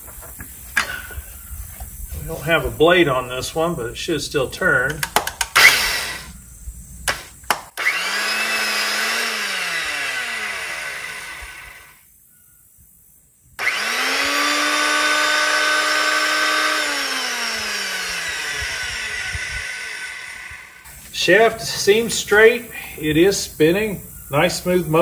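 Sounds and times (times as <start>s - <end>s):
circular saw motor whining: 5.6s - 6.4s, 7.1s - 12.0s, 13.6s - 21.1s.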